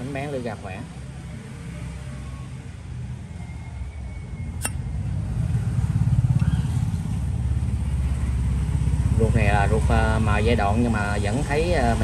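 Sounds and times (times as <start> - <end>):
sharp click: 4.6 - 4.9.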